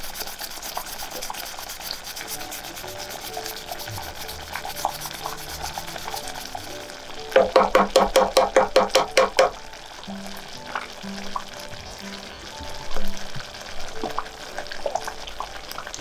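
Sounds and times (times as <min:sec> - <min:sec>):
grater grating ginger: 0:00.0 - 0:06.7.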